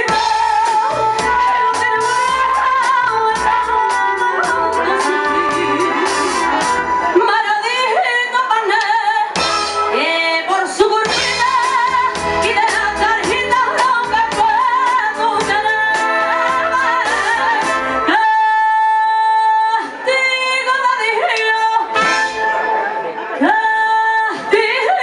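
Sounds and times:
band with drums: 0.0s - 7.2s, 9.3s - 10.1s, 10.8s - 18.1s, 21.4s - 23.0s
woman singing with vibrato: 0.0s - 25.0s.

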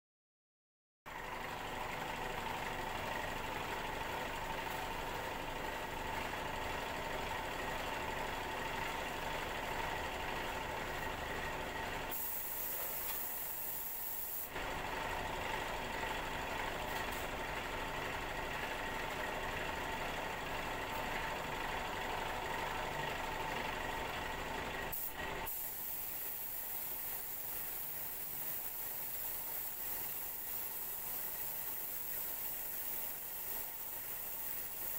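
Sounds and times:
paint spray gun hissing: 12.1s - 14.6s, 24.9s - 34.9s.

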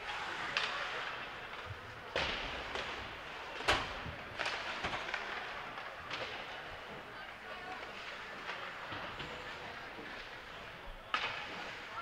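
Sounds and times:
hockey sticks and puck knocking: 11.1s - 11.7s.

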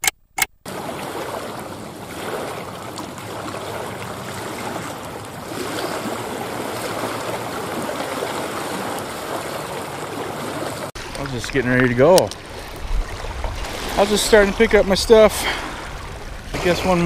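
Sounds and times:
waves lapping on rocky shore: 0.7s - 17.0s.

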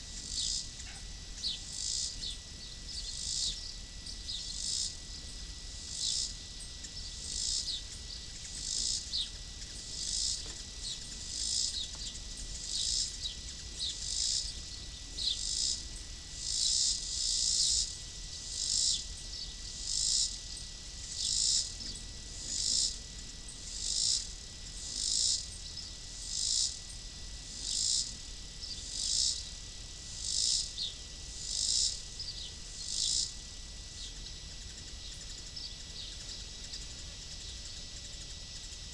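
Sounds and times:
faint high whine: 0.0s - 38.9s
insect calling raspy pulse: 0.0s - 38.9s.

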